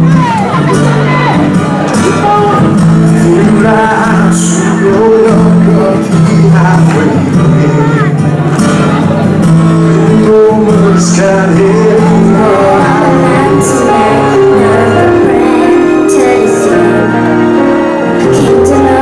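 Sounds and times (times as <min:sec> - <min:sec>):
backing music: 0:00.0 - 0:19.0
girl singing into a microphone: 0:18.2 - 0:19.0.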